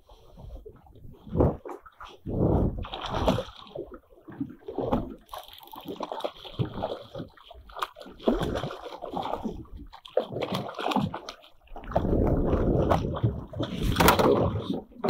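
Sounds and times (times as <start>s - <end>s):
fish splashing at water surface: 4.7s - 12.3s.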